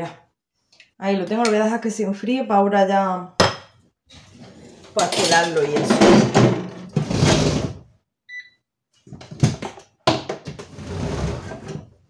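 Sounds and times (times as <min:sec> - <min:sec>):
kitchen items clattering and rustling: 0:04.1 - 0:07.8, 0:09.0 - 0:12.0
air fryer electronic beep: 0:08.3 - 0:08.6.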